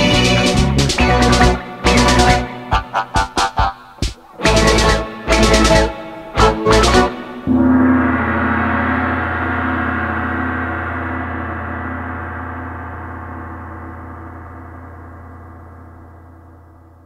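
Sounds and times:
gong ringing: 7.4s - 17.0s.

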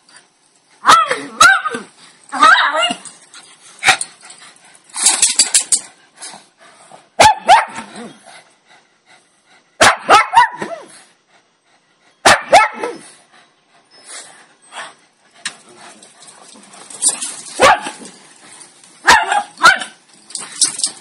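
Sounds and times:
dogs barking and yipping: 0.8s - 5.8s, 7.2s - 8.2s, 9.8s - 10.9s, 12.2s - 13.2s, 14.7s - 21.0s.

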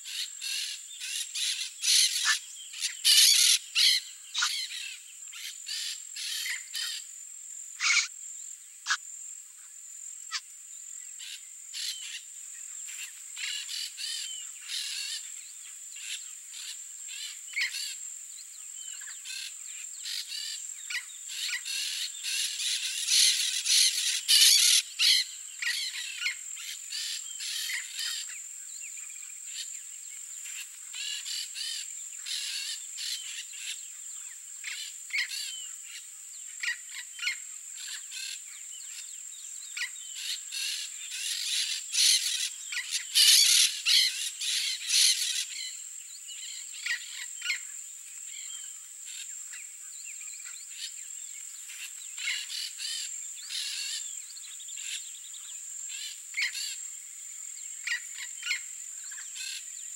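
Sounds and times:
parrots calling: 3.0s - 4.8s, 7.8s - 8.1s, 41.5s - 45.4s.

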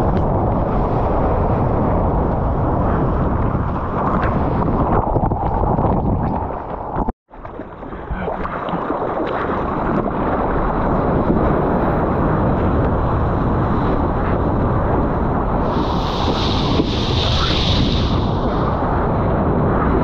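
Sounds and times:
wind buffeting microphone: 0.0s - 20.0s
sea water rushing and splashing: 3.8s - 20.0s
whitewater foam hiss: 15.5s - 18.9s.

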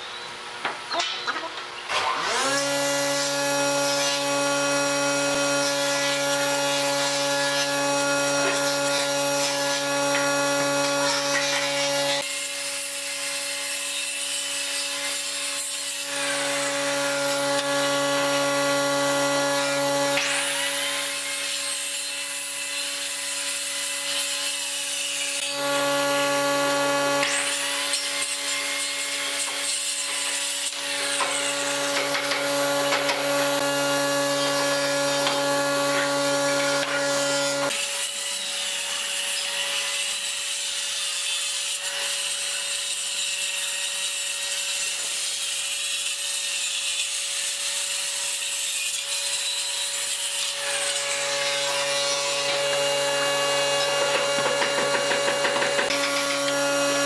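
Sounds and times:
saw blade rasping through wood: 1.9s - 57.0s
circular saw motor whining: 51.5s - 57.0s.

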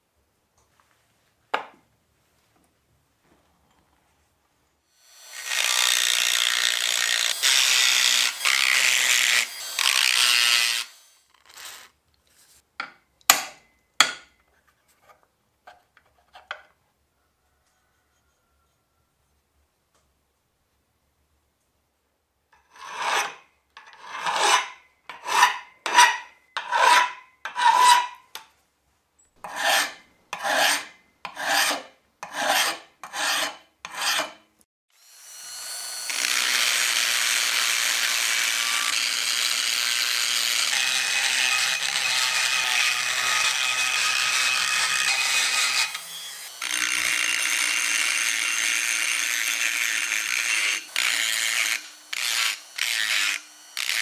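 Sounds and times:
rotary tool grinding metal: 4.9s - 12.0s, 22.6s - 28.2s, 29.4s - 34.4s, 35.0s - 54.0s
hand file rasping on iron: 22.6s - 28.3s, 29.4s - 34.4s, 40.5s - 54.0s.

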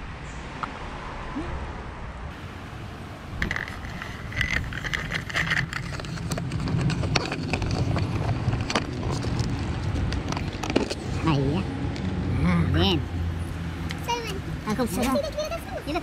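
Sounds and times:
street traffic rumble: 0.0s - 16.0s
utensil scraping metal tin: 3.4s - 9.4s.

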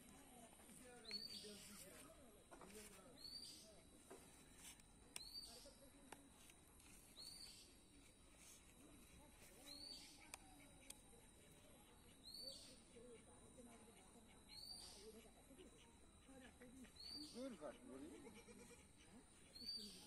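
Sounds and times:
bird chirping: 1.0s - 2.0s, 11.8s - 17.8s, 19.4s - 20.0s.

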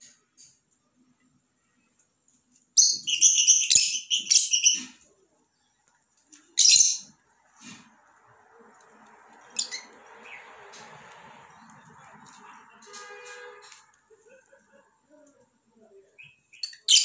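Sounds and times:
lovebird chirping: 2.8s - 7.2s, 9.4s - 12.8s, 16.1s - 17.0s.

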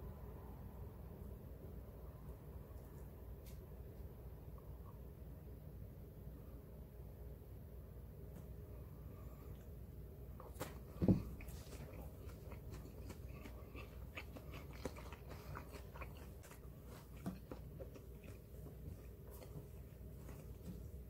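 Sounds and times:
wet mouth sounds: 10.4s - 18.5s
person chewing: 10.4s - 21.0s
thump: 11.0s - 11.3s.

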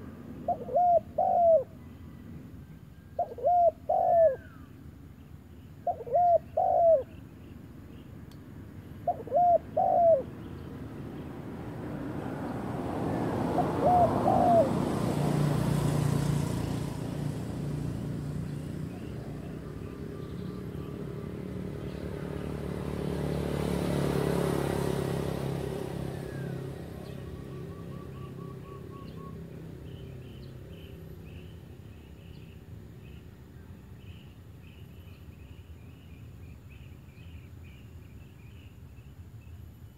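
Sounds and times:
vehicles passing rumble: 0.0s - 39.9s
dove cooing: 0.4s - 1.9s, 3.2s - 4.6s, 5.8s - 7.2s, 9.0s - 10.4s, 13.1s - 15.3s.

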